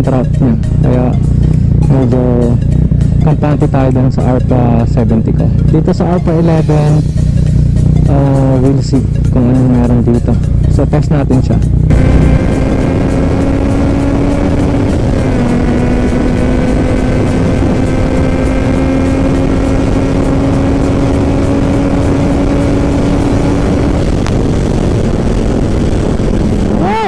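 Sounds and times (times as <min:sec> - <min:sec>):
motorcycle engine at high revs: 0:00.0 - 0:27.0
heavy wind rush: 0:18.8 - 0:27.0.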